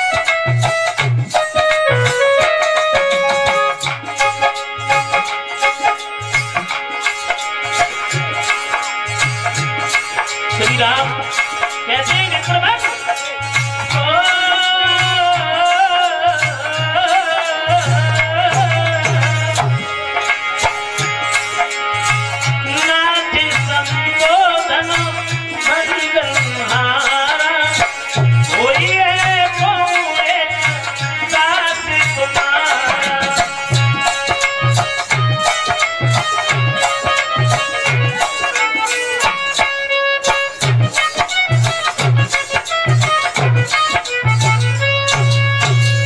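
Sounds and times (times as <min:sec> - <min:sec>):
hand drum beat: 0:00.0 - 0:46.0
sustained instrumental melody: 0:00.0 - 0:46.0
man singing: 0:10.4 - 0:20.5, 0:22.5 - 0:39.6.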